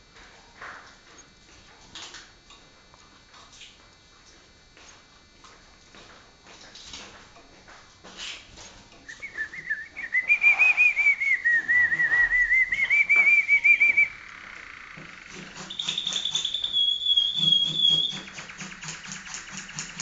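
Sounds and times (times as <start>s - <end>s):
canary singing trills: 9.1s - 20.0s.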